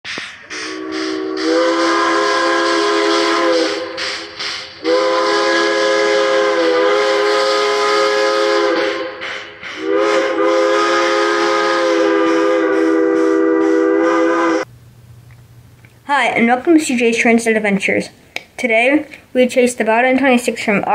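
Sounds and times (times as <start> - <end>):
steam whistle blasts: 0.1 - 14.7.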